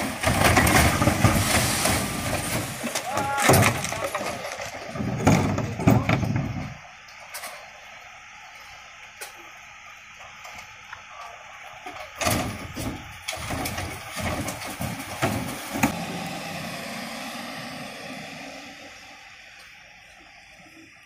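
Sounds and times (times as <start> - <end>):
recycling crashing into truck hopper: 0.0 - 7.7, 11.9 - 17.1
truck engine running: 0.0 - 21.0.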